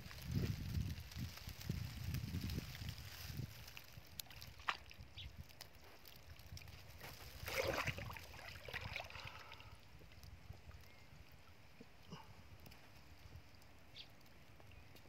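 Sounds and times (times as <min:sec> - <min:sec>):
muddy water sloshing: 0:03.0 - 0:10.2
water splash: 0:07.1 - 0:09.5.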